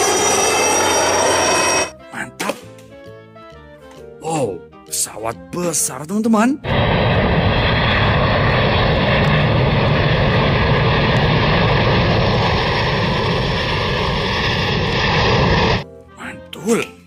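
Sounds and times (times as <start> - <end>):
jet engines roaring: 0.0 - 1.9, 6.6 - 15.8.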